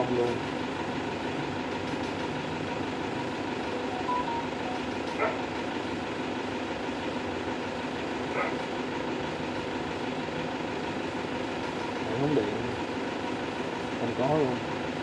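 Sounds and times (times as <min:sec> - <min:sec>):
car engine idling: 0:00.0 - 0:15.0
short high tone: 0:03.8 - 0:05.0.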